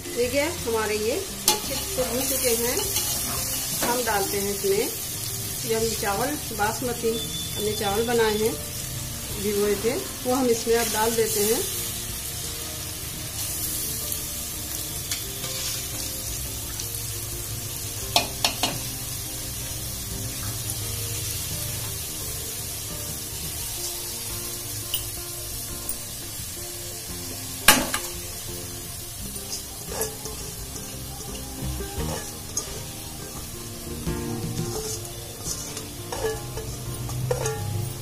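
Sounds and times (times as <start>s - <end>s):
rice sizzling in oil: 0.0s - 38.0s
metal spatula clinking on pot: 1.4s - 4.0s, 29.5s - 30.4s, 34.7s - 37.8s.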